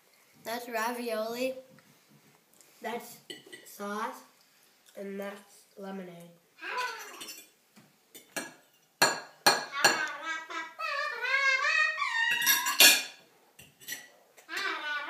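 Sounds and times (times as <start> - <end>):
fork clinking on a plate: 6.9 - 7.5, 12.3 - 14.7
wordless voice wavering in pitch: 9.7 - 12.4.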